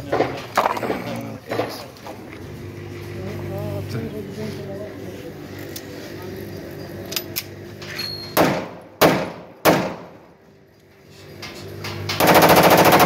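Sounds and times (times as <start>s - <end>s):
pistol shots: 8.4s - 10.1s
automatic gunfire burst: 12.2s - 13.0s.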